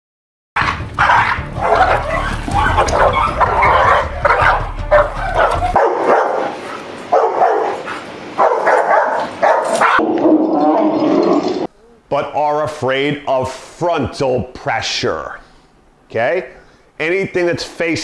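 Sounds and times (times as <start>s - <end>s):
dogs barking aggressively: 0.6s - 11.6s
low rumble: 1.4s - 5.8s.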